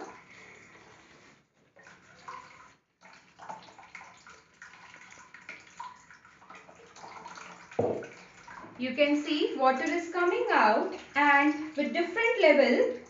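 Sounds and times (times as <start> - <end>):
water splashing into basin: 1.8 - 11.9.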